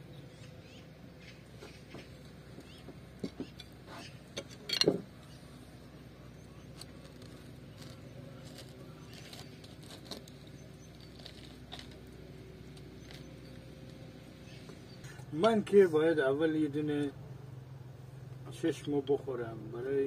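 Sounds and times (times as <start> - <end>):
quiet outdoor background: 0.0 - 20.0
orange rind tearing: 6.6 - 14.0.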